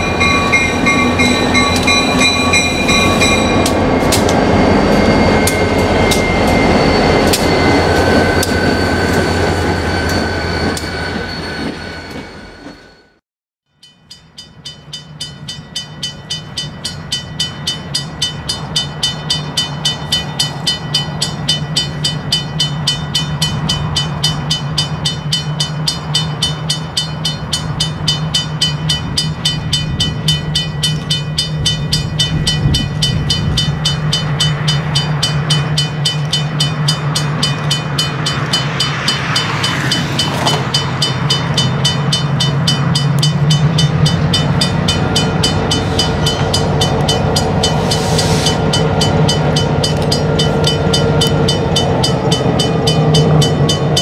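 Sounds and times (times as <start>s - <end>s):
diesel locomotive engine drone: 0.0s - 13.2s, 13.9s - 54.0s
train hissing or screeching: 0.0s - 13.2s, 45.1s - 53.5s
locomotive bell ringing: 0.0s - 54.0s.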